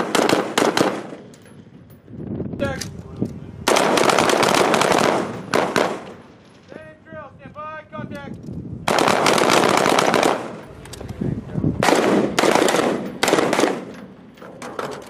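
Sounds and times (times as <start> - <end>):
automatic weapons fire: 0.0 - 1.3, 3.7 - 6.3, 8.9 - 10.6, 11.8 - 14.1.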